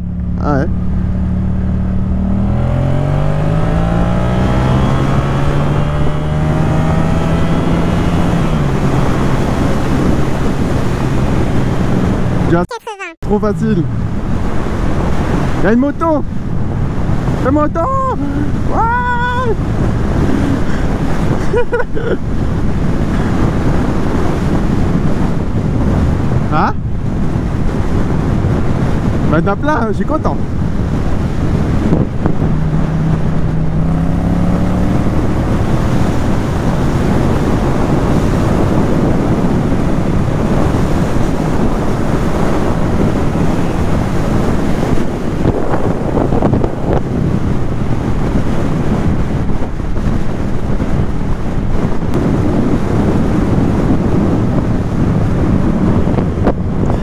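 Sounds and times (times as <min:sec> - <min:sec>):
motorcycle engine running: 0:00.0 - 0:11.4, 0:30.4 - 0:45.0
wind rushing over microphone: 0:00.0 - 0:57.0.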